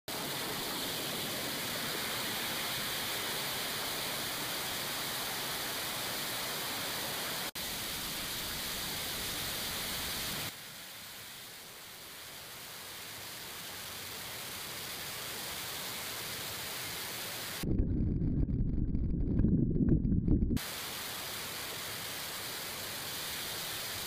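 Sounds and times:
waterfall rushing: 0:00.1 - 0:10.6.

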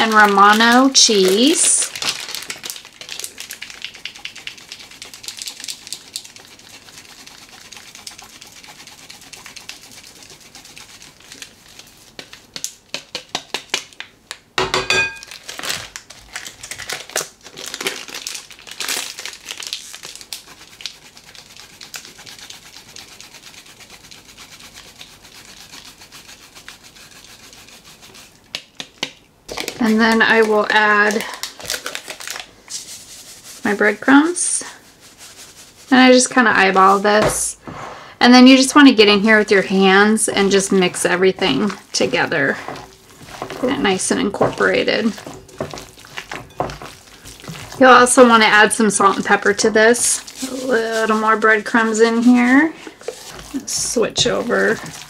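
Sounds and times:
cheese rasped on metal grater: 0:04.0 - 0:12.3, 0:20.3 - 0:28.4, 0:39.0 - 0:55.0.

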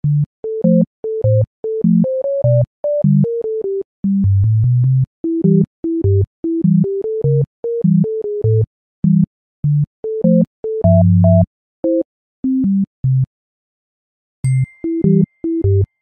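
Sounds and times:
bass line: 0:10.9 - 0:11.5.

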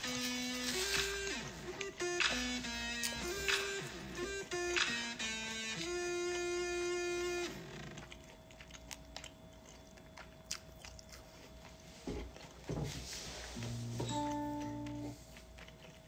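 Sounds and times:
guitar background music: 0:00.0 - 0:07.5, 0:13.7 - 0:15.2
chewing with wet clicks: 0:07.8 - 0:12.6, 0:14.6 - 0:16.0.

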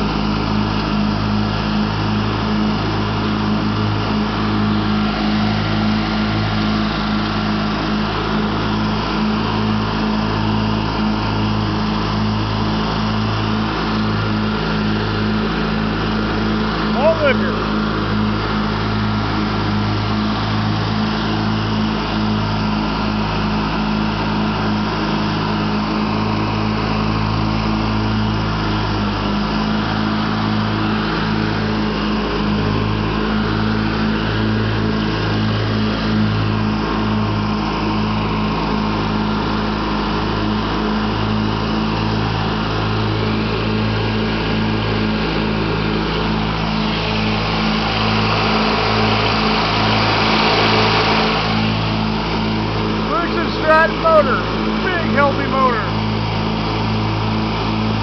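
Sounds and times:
lawn tractor engine running: 0:00.0 - 0:58.0.

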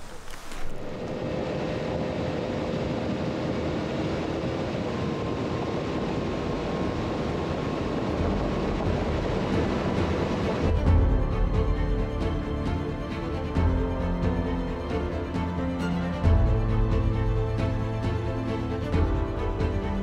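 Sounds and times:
music: 0:07.8 - 0:20.0.

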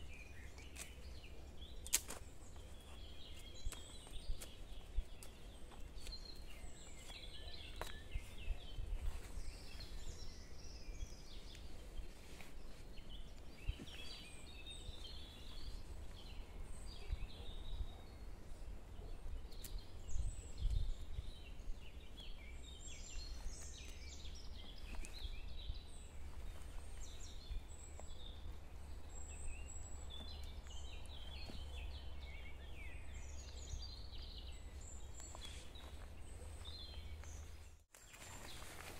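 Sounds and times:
birds chirping and singing: 0:00.0 - 0:38.9.

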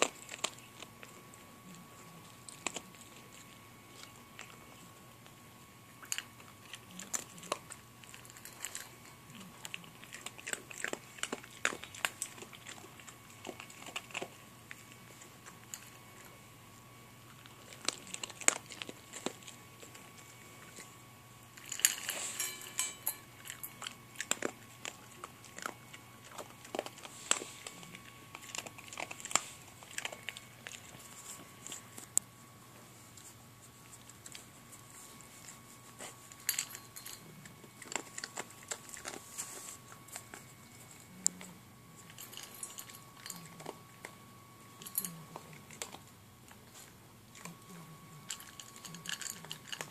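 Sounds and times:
puppy crunching dry kibble: 0:00.0 - 0:49.9
metal bowl clatter: 0:21.6 - 0:23.7.

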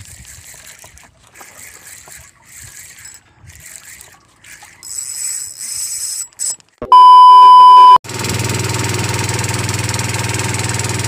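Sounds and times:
faint wind: 0:00.0 - 0:06.8
reel handling clicks: 0:00.0 - 0:06.8.

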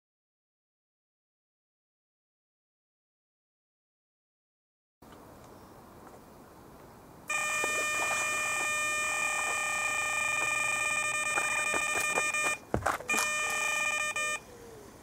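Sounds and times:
bite alarm high tone: 0:07.3 - 0:14.4.

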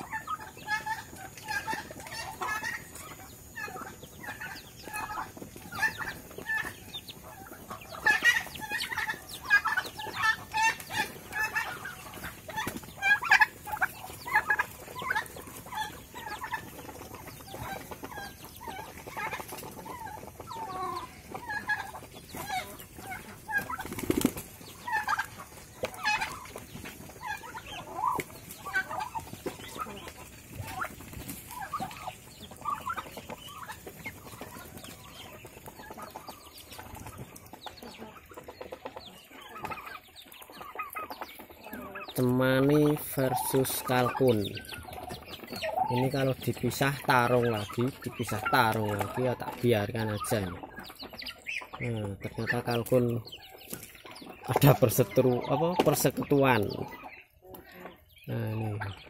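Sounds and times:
birds scuffling: 0:00.0 - 0:59.0
poultry clucking: 0:00.0 - 0:59.0
wings flapping: 0:00.9 - 0:41.9.

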